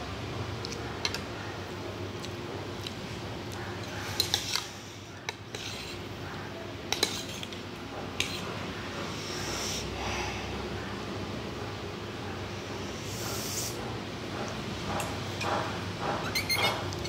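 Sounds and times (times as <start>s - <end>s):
cutlery clinking against ceramic bowl: 6.9s - 7.6s, 16.2s - 17.0s.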